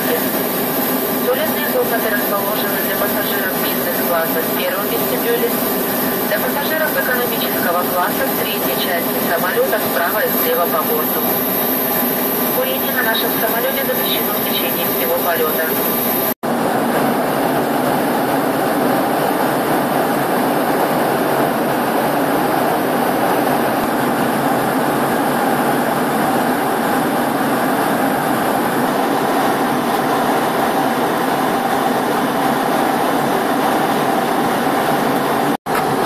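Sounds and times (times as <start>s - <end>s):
jet airliner cabin noise: 0.0s - 36.0s.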